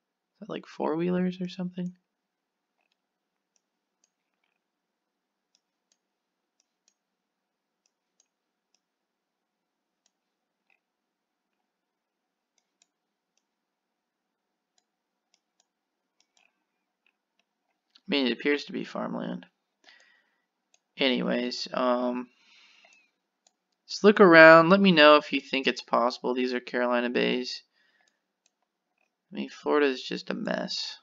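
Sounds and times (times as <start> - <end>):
computer mouse clicks: 2.8 - 4.7, 5.5 - 7.1, 7.8 - 8.9, 12.5 - 13.6, 14.7 - 18.1, 28.0 - 29.2.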